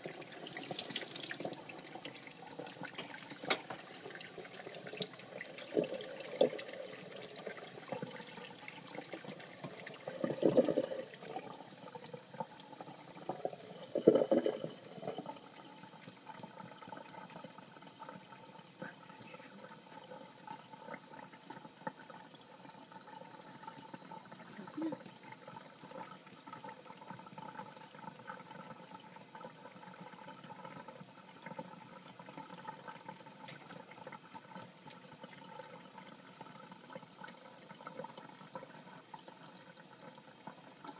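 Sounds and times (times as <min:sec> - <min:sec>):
tap water trickling into sink: 0:00.0 - 0:15.5, 0:32.4 - 0:35.4.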